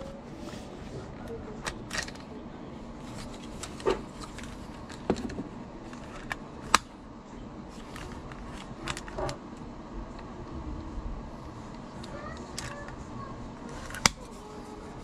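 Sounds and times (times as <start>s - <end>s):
handling noise: 0.0s - 7.0s.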